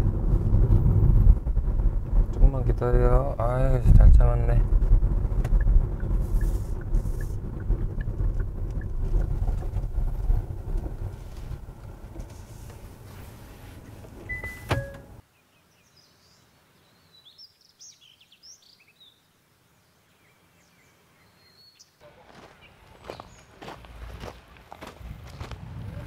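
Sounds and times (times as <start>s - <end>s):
road rumble inside moving car: 0.0s - 15.2s
birds chirping: 14.3s - 24.8s
footsteps on a path: 22.1s - 26.0s.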